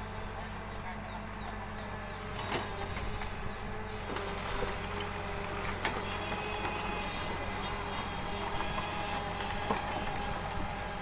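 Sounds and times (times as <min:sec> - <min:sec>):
excavator running: 0:00.0 - 0:11.0
metallic clanks and squeaks: 0:08.6 - 0:10.5.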